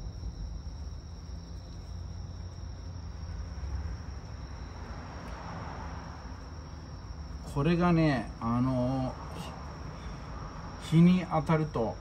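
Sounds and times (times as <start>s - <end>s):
steady low rumble: 0.0s - 5.0s.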